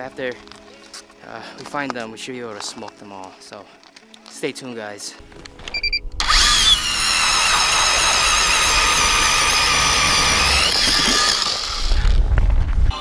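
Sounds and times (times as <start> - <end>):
electric ice auger whine: 6.2 - 12.2
low rumble: 11.6 - 13.0.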